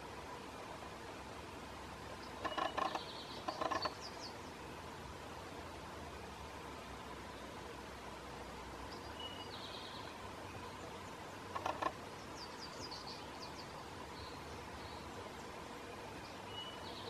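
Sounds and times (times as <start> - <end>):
steady hiss: 0.0 - 17.0
faint songbird trills: 2.1 - 4.6, 8.8 - 17.0
woodpecker knocking on wood: 2.4 - 4.0, 11.5 - 12.0.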